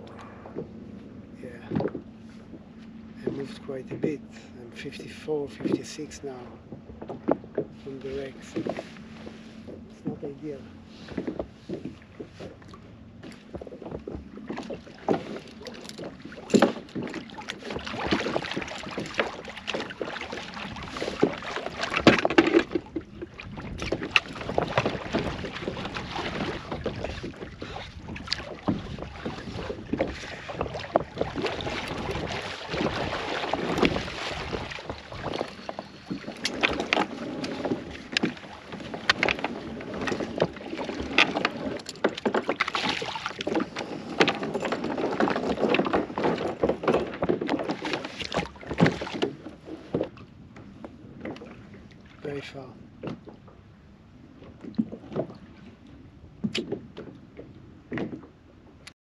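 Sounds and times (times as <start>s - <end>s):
water slapping against hull: 0.0s - 58.9s
wind on microphone: 20.6s - 38.4s
knocks and clicks of gear: 21.9s - 25.3s, 34.8s - 50.7s, 56.4s - 57.2s.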